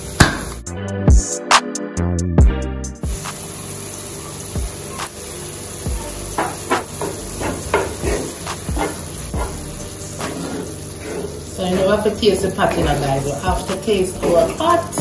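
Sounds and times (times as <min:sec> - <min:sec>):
meat sizzling in a skillet: 0:03.0 - 0:15.0
wooden spoon scraping a pan: 0:06.4 - 0:09.6, 0:10.2 - 0:13.5, 0:14.2 - 0:15.0.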